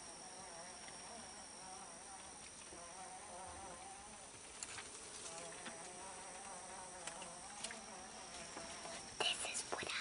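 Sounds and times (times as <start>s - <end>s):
flying insect buzzing: 0.0s - 10.0s
faint ticks: 2.1s - 10.0s.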